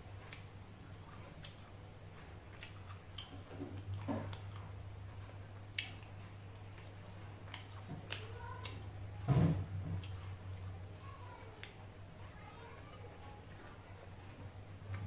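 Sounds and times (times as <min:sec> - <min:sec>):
person chewing food: 0:00.0 - 0:09.0, 0:09.6 - 0:10.9, 0:12.8 - 0:15.0
steady low hum: 0:00.0 - 0:15.0
mouth clicks and wet smacks: 0:00.3 - 0:01.7, 0:02.5 - 0:04.6, 0:05.7 - 0:08.8.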